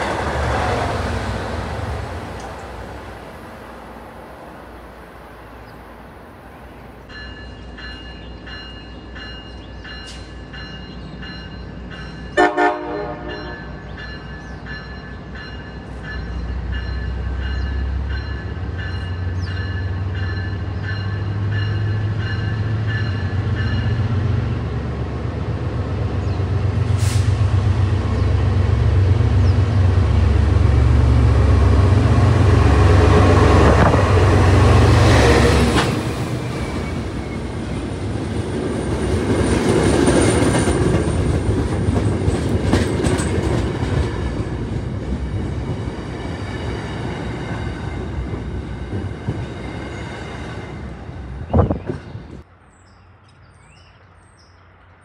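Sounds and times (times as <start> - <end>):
train wheels on rails: 0.0 - 52.5
diesel locomotive engine drone: 0.0 - 55.0
locomotive bell ringing: 7.1 - 24.2.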